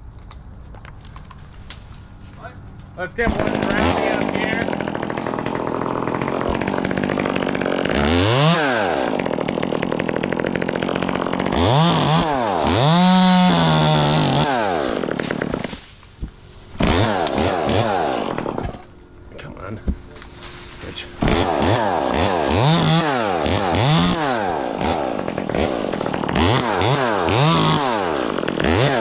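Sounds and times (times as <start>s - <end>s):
chainsaw engine revving: 3.2s - 15.8s, 16.8s - 18.9s, 20.9s - 29.0s.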